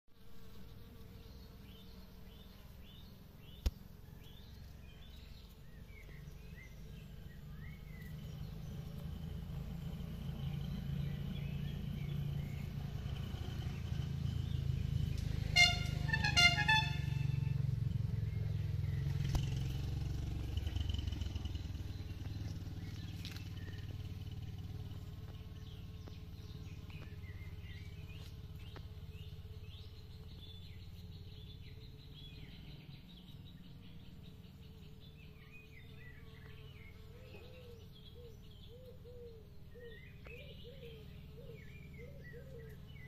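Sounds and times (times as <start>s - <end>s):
road traffic rumble: 0.2s - 43.0s
small birds chirping: 0.2s - 43.0s
car horn honks: 15.4s - 17.6s.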